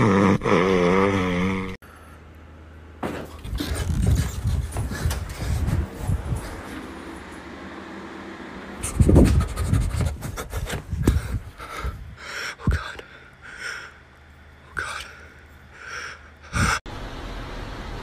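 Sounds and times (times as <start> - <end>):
low thumps and rustles: 3.0 - 7.0, 8.8 - 12.8
breathy panting huffs: 9.0 - 14.1, 14.8 - 16.9.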